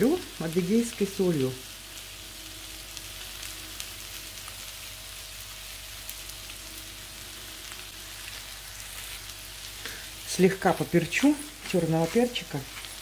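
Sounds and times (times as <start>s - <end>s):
vegetables frying in oil: 0.0s - 13.0s
faint crackles: 7.6s - 13.0s.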